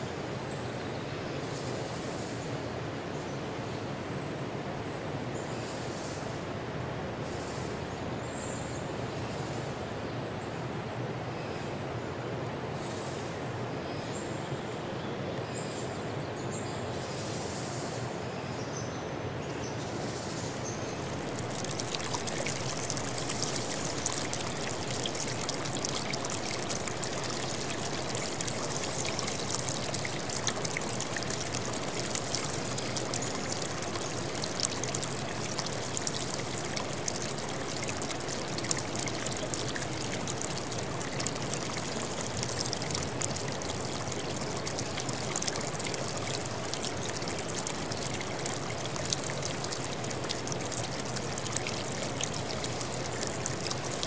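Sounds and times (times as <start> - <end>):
stream water splashing over rocks: 20.7 - 54.0.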